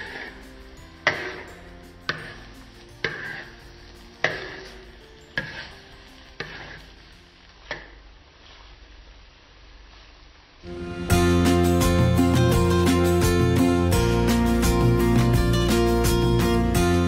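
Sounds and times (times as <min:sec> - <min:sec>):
metal spoon scraping a wok: 0:00.0 - 0:07.1
food sizzling: 0:00.0 - 0:17.0.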